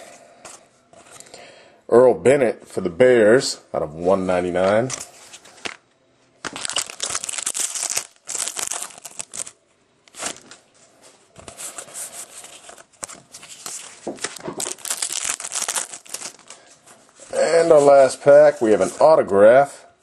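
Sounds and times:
plastic wrapper crinkling: 6.4 - 10.6, 12.3 - 16.8.

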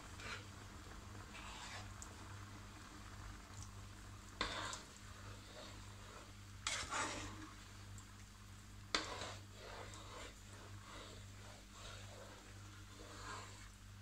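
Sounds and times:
spatula scraping frying pan: 0.0 - 0.6, 1.2 - 2.1, 4.3 - 7.6, 8.9 - 13.8
spatula stirring thick mixture: 0.0 - 14.0.

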